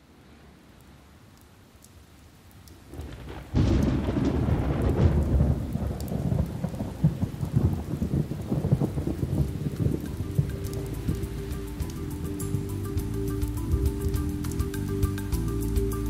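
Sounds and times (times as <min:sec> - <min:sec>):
rain: 0:00.0 - 0:16.0
thunder rumbling: 0:02.9 - 0:16.0.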